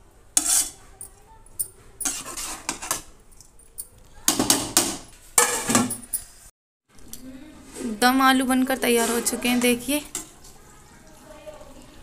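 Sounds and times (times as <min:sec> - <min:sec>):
spoon scraping metal pot: 0:00.4 - 0:00.8, 0:01.6 - 0:03.1, 0:08.7 - 0:10.4.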